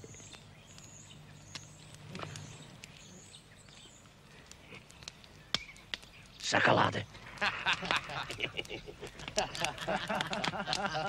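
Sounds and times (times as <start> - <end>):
soft bird chirps: 0.0 - 7.4
low steady hum: 0.0 - 11.0.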